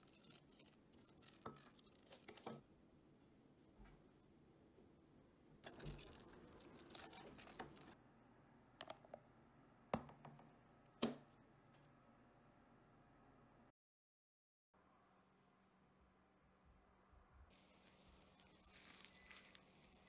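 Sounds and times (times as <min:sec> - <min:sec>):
plastic rustling and crinkling: 0:17.5 - 0:20.0.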